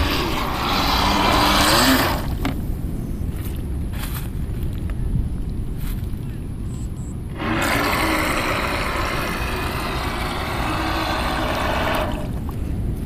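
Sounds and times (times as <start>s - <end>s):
model boat motor whining: 0.0s - 2.4s, 7.4s - 12.4s
wind rumble on microphone: 0.0s - 13.0s.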